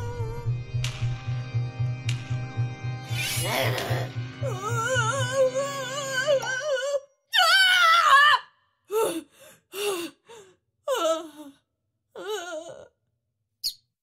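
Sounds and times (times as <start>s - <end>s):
low pulsing music tone: 0.0s - 7.1s.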